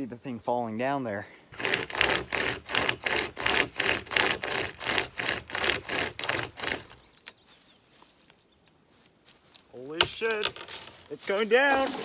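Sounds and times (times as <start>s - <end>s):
pocket chainsaw rasping through wood: 1.3s - 7.3s, 10.1s - 12.0s.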